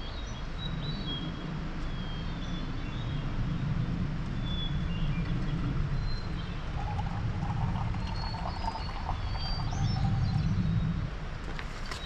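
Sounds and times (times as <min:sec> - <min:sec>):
small birds chirping: 0:04.3 - 0:11.0.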